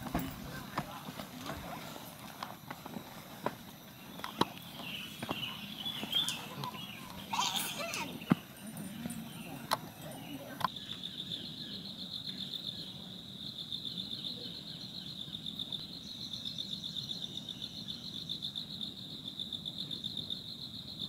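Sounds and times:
insect trilling: 3.9 - 20.5.

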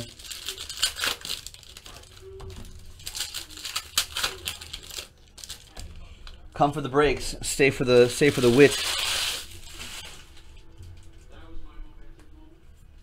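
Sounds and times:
foil wrapper crinkling and tearing: 0.0 - 5.8, 7.9 - 10.4.

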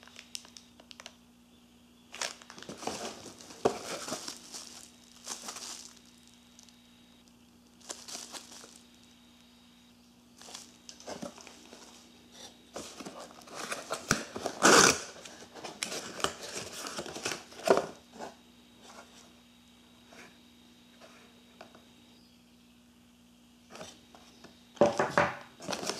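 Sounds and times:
bubble wrap crinkling: 0.0 - 1.2, 2.1 - 9.1, 10.4 - 18.0, 25.6 - 25.9.

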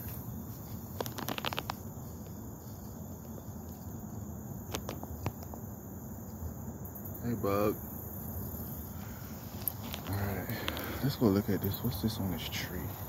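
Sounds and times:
light clicks and rustles: 0.0 - 4.0, 9.4 - 12.0
crickets chirring: 0.0 - 13.0.

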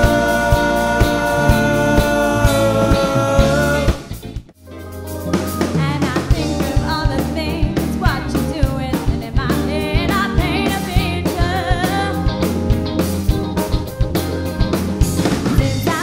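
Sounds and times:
person singing: 0.0 - 4.1
drums beat: 0.0 - 16.0
electric bass: 0.0 - 16.0
electric guitars: 0.0 - 16.0.

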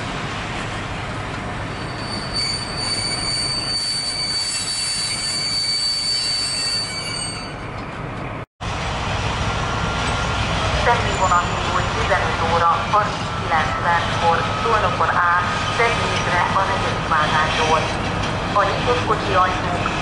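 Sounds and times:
high wheel squeal: 1.7 - 7.8
train rumble: 6.2 - 20.0.

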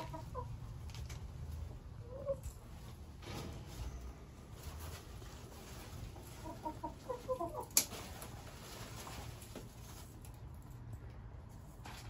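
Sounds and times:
chicken clucking: 0.0 - 0.8, 2.0 - 2.6, 6.0 - 8.1.

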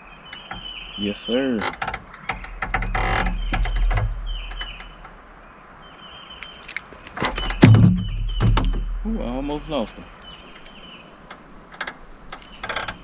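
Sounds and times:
rustling: 0.5 - 5.4
fish handling clicks: 6.4 - 7.2.

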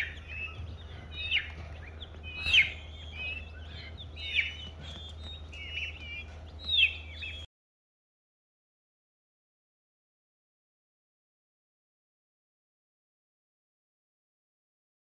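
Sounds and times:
baby chicks peeping: 0.0 - 7.5
low steady hum: 0.0 - 7.5.

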